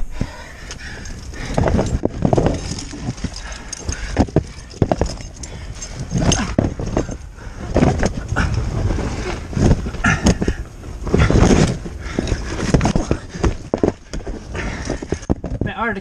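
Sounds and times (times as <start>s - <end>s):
scraping and rustling footsteps: 0.0s - 16.0s
rocks knocking and clattering: 0.2s - 16.0s.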